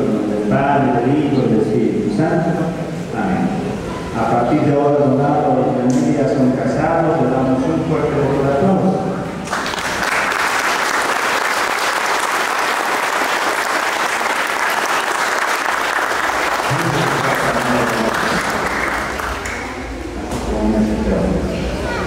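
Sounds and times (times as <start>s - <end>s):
congregation applauding: 9.4s - 20.0s.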